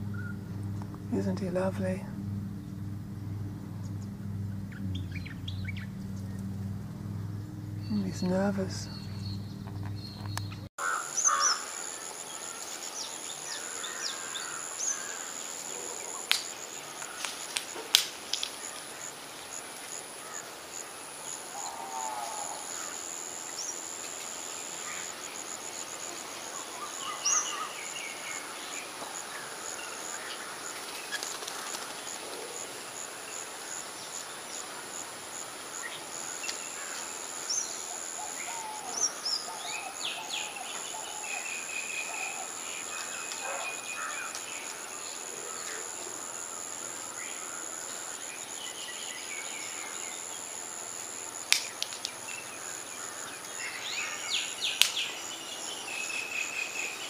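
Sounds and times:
bird chirps: 0.0s - 11.7s
insects droning: 0.0s - 57.0s.

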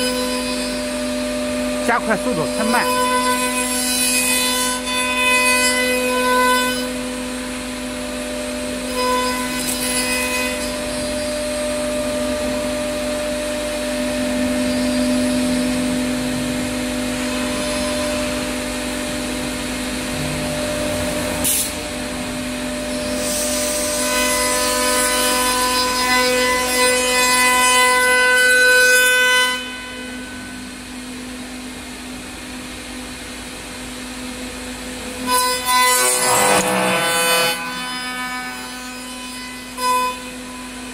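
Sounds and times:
cnc spindle whining: 0.0s - 40.9s
cutter rasping in wood: 1.8s - 6.9s, 35.3s - 40.3s.

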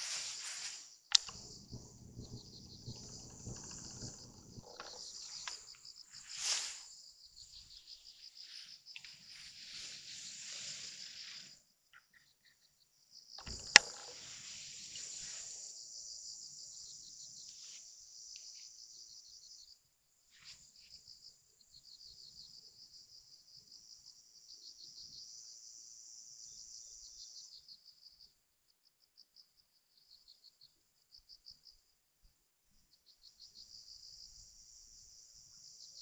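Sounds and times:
insects chirring: 0.0s - 11.5s, 12.1s - 19.6s
sharp click: 1.1s - 5.6s, 13.4s - 14.2s.

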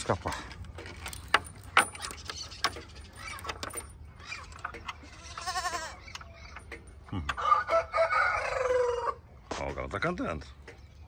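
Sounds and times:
rooster crowing: 7.4s - 9.2s.

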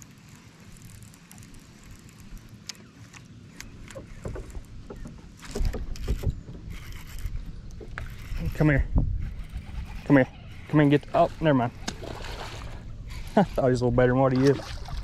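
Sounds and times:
water lapping against boat hull: 0.4s - 15.0s
thumps and knocks on boat: 3.9s - 6.7s.

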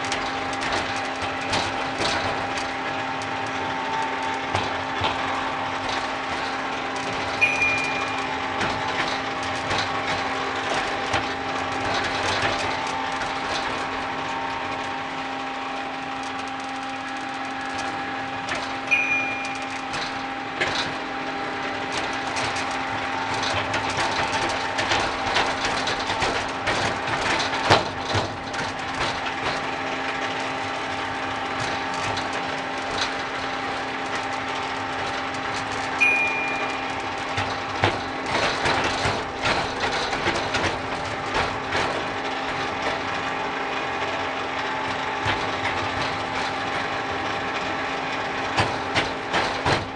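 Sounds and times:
steady motor hum: 0.0s - 49.9s
wheels clicking over rails: 0.0s - 49.9s.

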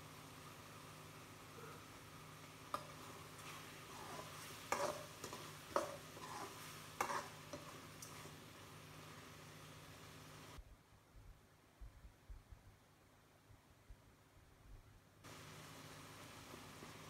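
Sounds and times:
mixture sizzling softly: 0.0s - 10.6s, 15.2s - 17.0s
spoon scraping a pan: 2.7s - 8.4s.

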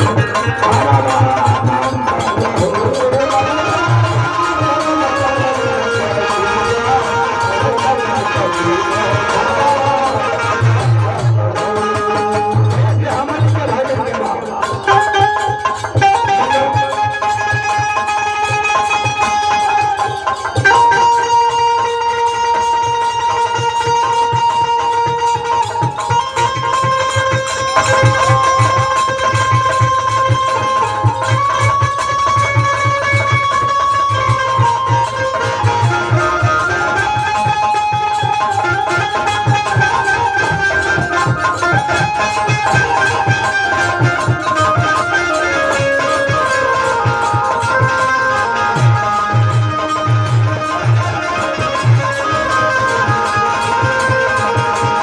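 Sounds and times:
dholak drum beat: 0.0s - 55.0s
banjo playing slow melody: 13.8s - 55.0s.

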